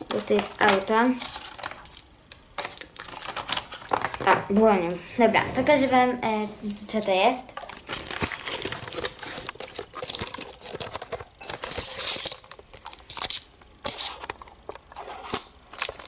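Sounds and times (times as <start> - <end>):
cardboard rustling and crinkling: 0.0 - 1.9, 5.6 - 16.0
small clicks and scrapes: 5.7 - 16.0.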